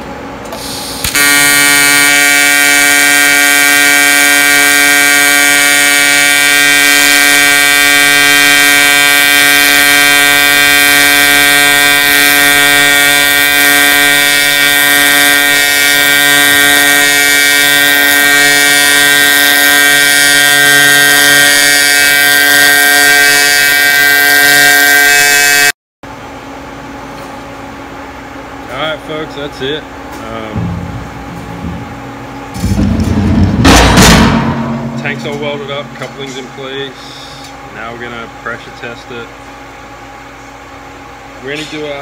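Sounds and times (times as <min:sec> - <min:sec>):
welding arc buzzing: 0:00.6 - 0:25.7.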